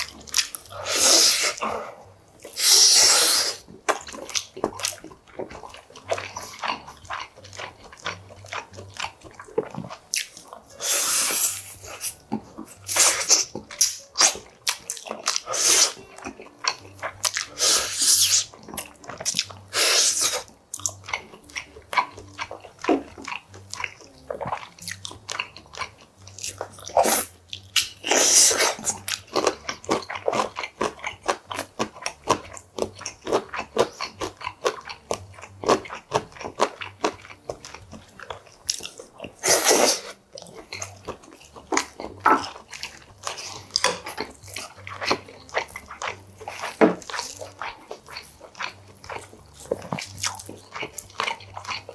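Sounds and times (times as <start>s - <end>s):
wet chewing and smacking: 0.0s - 51.9s
loud slurps of broth: 2.6s - 3.6s, 39.4s - 40.2s.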